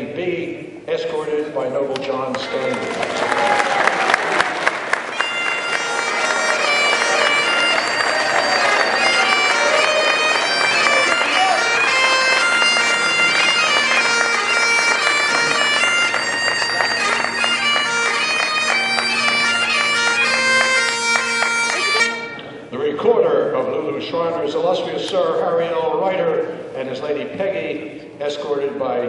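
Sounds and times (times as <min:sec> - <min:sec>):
bagpipes playing: 0:04.6 - 0:22.7.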